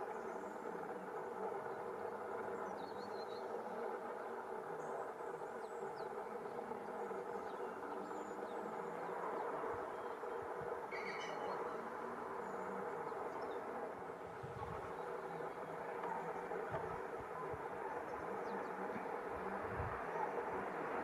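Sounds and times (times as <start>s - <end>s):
faint bird chirps: 4.7s - 14.0s.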